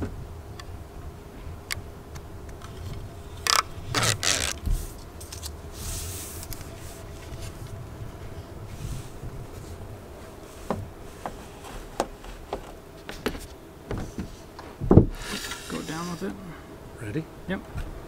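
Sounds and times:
tape liner ripping: 0:03.5 - 0:04.7.

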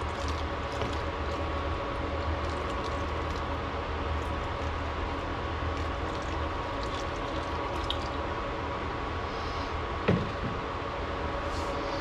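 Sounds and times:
liquid pouring and trickling: 0:00.0 - 0:08.4
cooktop hum and fan noise: 0:00.0 - 0:12.0.

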